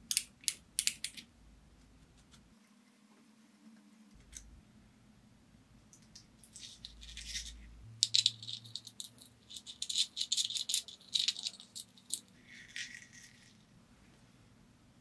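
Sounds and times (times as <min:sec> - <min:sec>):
small metal parts clicking: 0:06.0 - 0:13.6.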